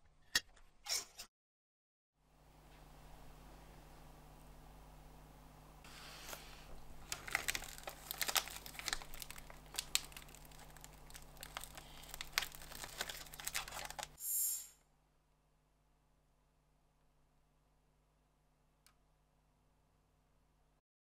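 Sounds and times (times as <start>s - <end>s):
plastic wrapper crinkling: 6.8s - 14.2s
loud hissing noise: 14.2s - 14.8s.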